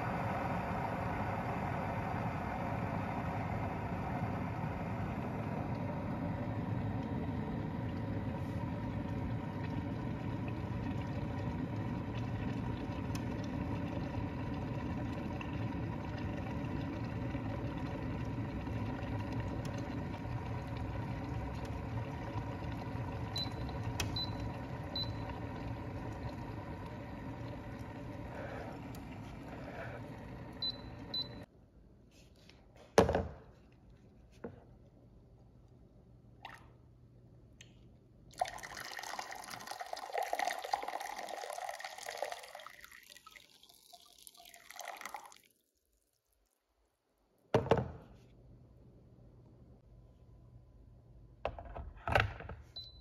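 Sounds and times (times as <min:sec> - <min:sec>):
electric kettle boiling: 0:00.0 - 0:31.5, 0:38.3 - 0:45.5
water pouring into a glass jug: 0:00.0 - 0:31.5, 0:38.3 - 0:46.6.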